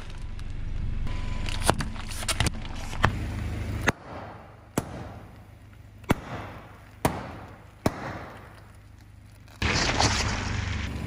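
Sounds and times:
low rumble: 0:00.0 - 0:11.0
plastic packets bursting under tyre: 0:04.6 - 0:11.0.

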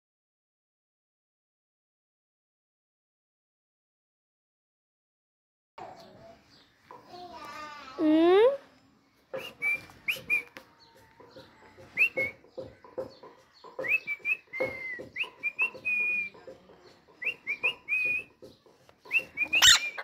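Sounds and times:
parakeet whistled chirps: 0:19.1 - 0:20.0.

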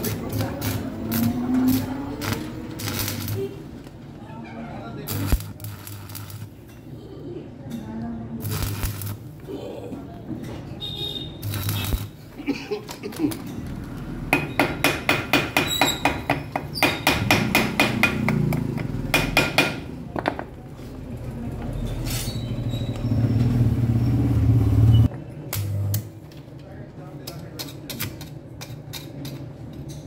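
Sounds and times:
welding arc crackle: 0:00.0 - 0:03.9, 0:05.0 - 0:06.6, 0:08.4 - 0:09.5, 0:11.3 - 0:13.5
hammer tapping metal: 0:14.3 - 0:19.9.

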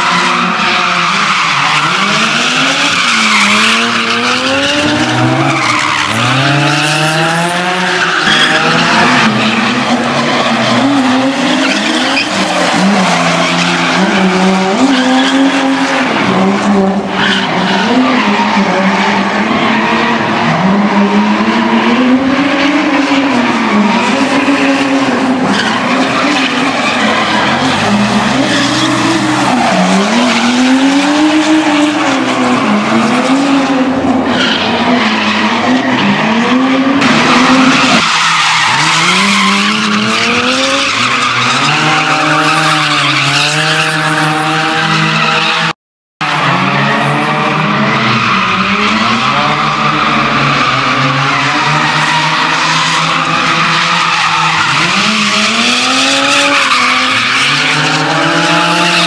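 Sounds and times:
tyres squealing and skidding: 0:00.0 - 0:59.0.

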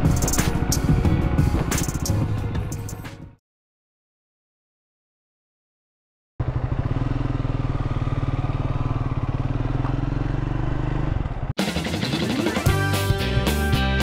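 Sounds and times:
motorcycle engine running: 0:00.0 - 0:03.0, 0:06.4 - 0:12.4
music: 0:00.0 - 0:03.4, 0:11.6 - 0:14.0.

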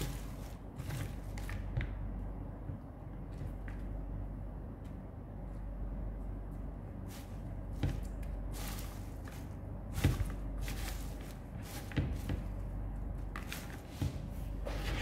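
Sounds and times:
low steady hum: 0:00.0 - 0:15.0
hands rustling through leaves: 0:08.4 - 0:12.0.

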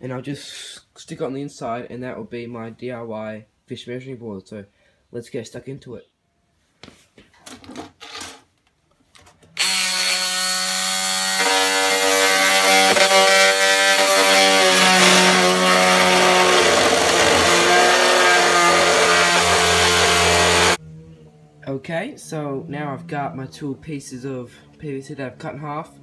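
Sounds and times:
oscillating multi-tool cutting plastic pipe: 0:09.6 - 0:20.8.

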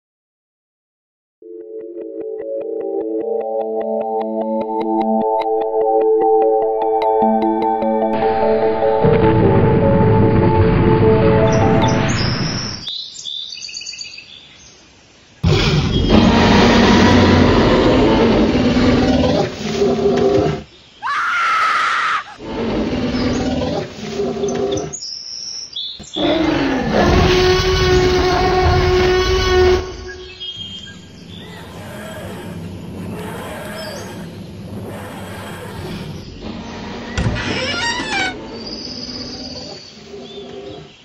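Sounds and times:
monster roars and growls: 0:15.4 - 0:20.6, 0:26.2 - 0:40.9
gliding screech: 0:27.1 - 0:38.5.

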